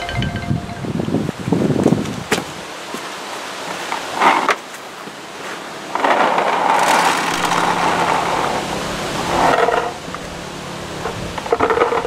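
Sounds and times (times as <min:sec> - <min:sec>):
plastic container clatter: 0:06.0 - 0:08.1
paintballs pouring into hopper: 0:06.1 - 0:08.4.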